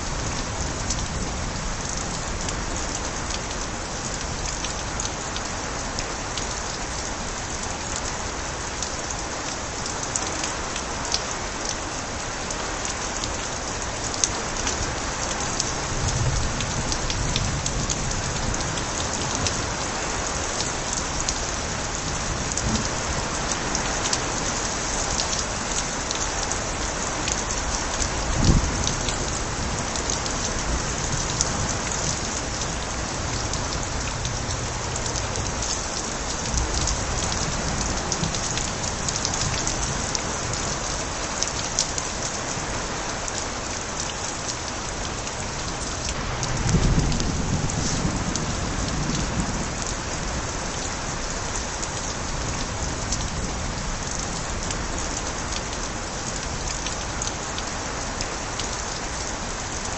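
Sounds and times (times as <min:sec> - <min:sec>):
steady rain: 0:00.0 - 0:59.9
water spilling from gutters: 0:00.0 - 0:59.9
distant thunder rumble: 0:46.2 - 0:49.8.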